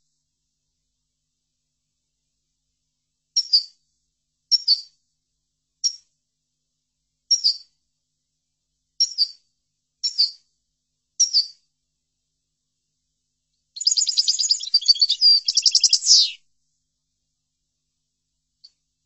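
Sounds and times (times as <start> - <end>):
bird chirping and twittering: 13.8 - 16.4.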